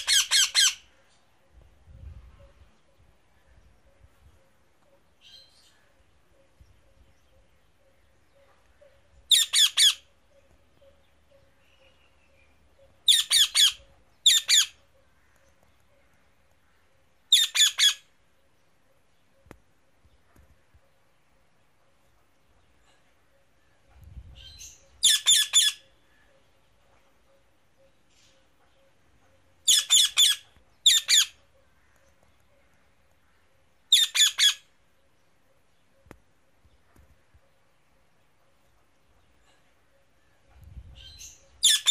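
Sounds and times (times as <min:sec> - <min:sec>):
parrot squawking: 0:00.0 - 0:00.8, 0:09.3 - 0:10.0, 0:13.1 - 0:14.8, 0:17.3 - 0:18.0, 0:25.0 - 0:25.8, 0:29.7 - 0:31.4, 0:33.9 - 0:34.7, 0:41.6 - 0:41.9.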